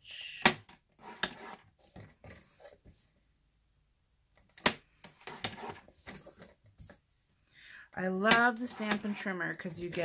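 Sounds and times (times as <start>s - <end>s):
blade scratching along rail: 8.6s - 10.0s.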